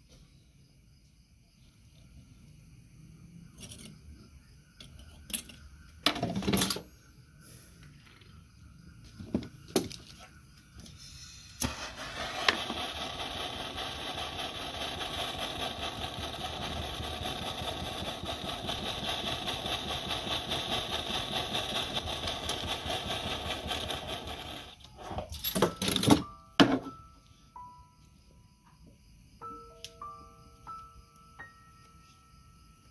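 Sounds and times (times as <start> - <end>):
blowtorch hissing: 11.6 - 24.8.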